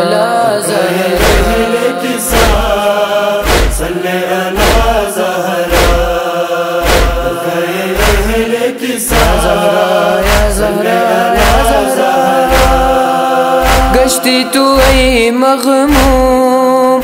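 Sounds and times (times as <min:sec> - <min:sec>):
backing voices chanting: 0:00.0 - 0:16.2
deep regular drum beat: 0:01.2 - 0:01.7, 0:02.3 - 0:04.0, 0:04.6 - 0:05.1, 0:05.7 - 0:08.5, 0:09.1 - 0:16.5.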